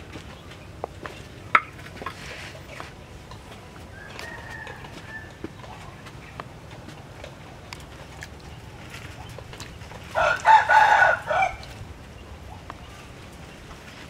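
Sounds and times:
rooster crowing: 3.9s - 5.6s, 10.1s - 11.7s.

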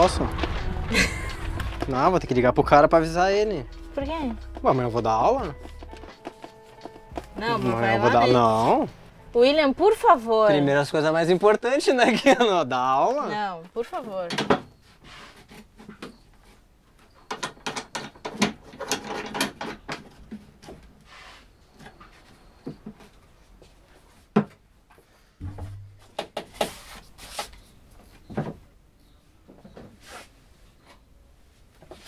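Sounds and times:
short low thump: 25.4s - 26.2s
scattered knocks: 25.4s - 26.5s.

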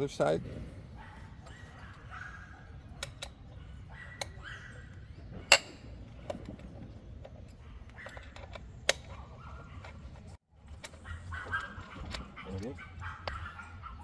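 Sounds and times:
allen key clicking on screws: 2.9s - 4.4s, 5.5s - 9.2s.

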